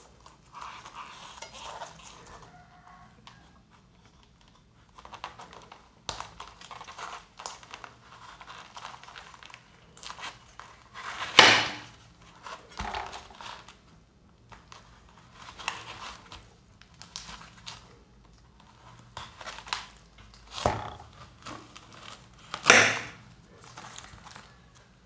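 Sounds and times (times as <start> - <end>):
knife cutting and scraping: 0.3 - 2.5.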